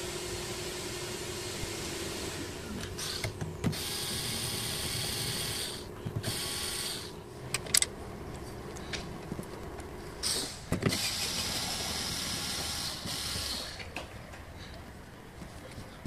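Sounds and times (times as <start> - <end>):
electric screwdriver whining: 3.0 - 7.1.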